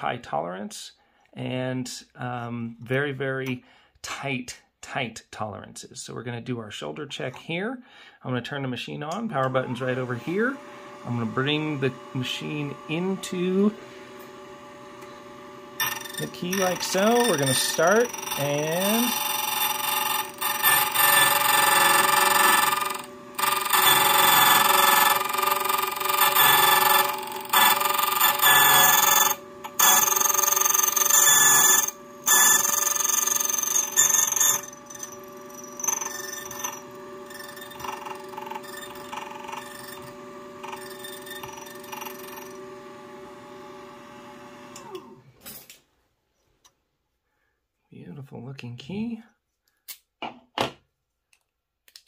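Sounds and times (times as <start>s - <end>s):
key cutting machine motor: 9.4s - 45.2s
key cutter screeching: 15.8s - 42.6s.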